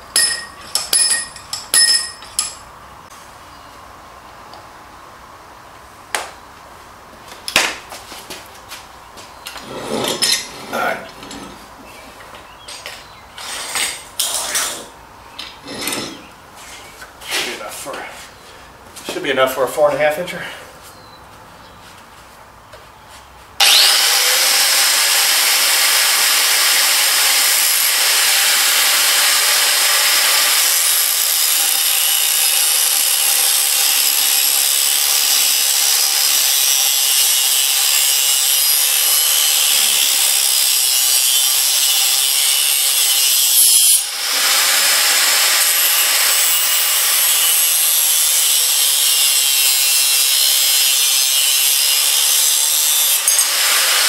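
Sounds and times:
angle grinder cutting metal: 23.6 - 54.0.

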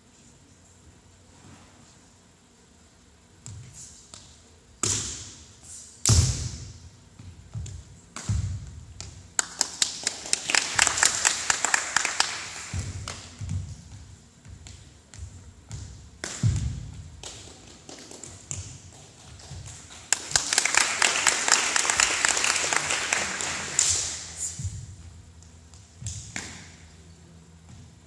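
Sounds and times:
sharp slaps: 4.0 - 5.4, 6.0 - 6.7, 16.2 - 18.8, 19.7 - 24.8, 26.0 - 26.9.

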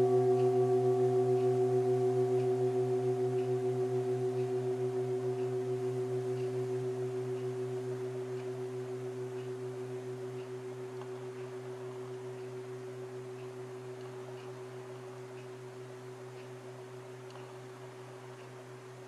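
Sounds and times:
singing bowl ringing: 0.0 - 14.0.

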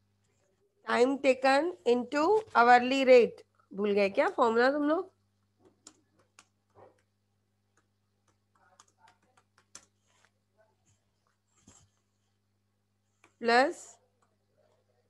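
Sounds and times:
keyboard typing: 5.6 - 10.4.

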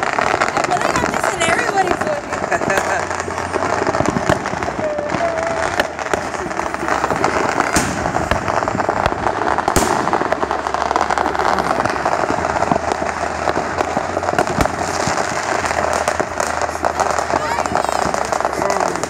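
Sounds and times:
firecrackers crackling: 0.0 - 19.0
loud firework bangs: 0.0 - 19.0.

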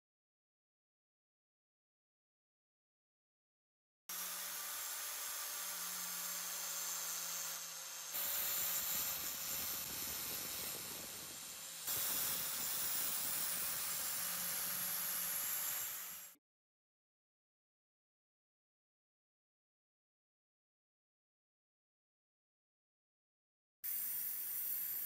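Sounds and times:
angle grinder polishing metal: 4.1 - 16.4, 23.9 - 25.0.

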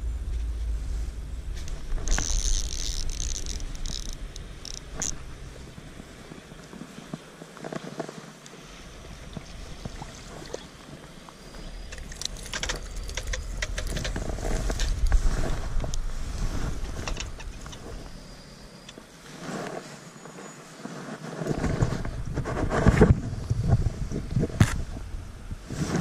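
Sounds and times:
wind rumbling on microphone: 0.0 - 26.0
fish splashing: 1.7 - 6.3, 8.8 - 18.8
fishing reel clicks: 2.0 - 5.3.

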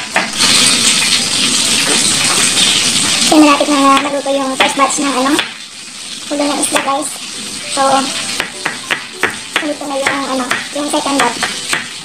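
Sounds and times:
fish sizzling in oil in a pan: 0.0 - 12.0
knife tapping on cutting board: 8.4 - 12.0.

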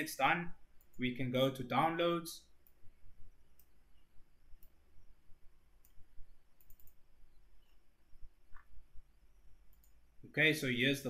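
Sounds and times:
low steady hum: 0.0 - 11.0
computer mouse clicks: 0.8 - 1.1, 3.5 - 4.8, 5.8 - 7.8, 9.7 - 10.0.

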